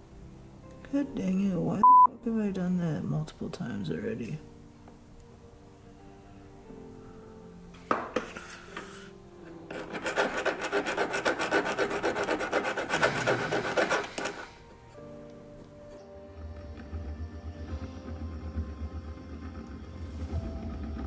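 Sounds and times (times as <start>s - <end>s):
needle file rasping on metal: 9.6s - 14.6s.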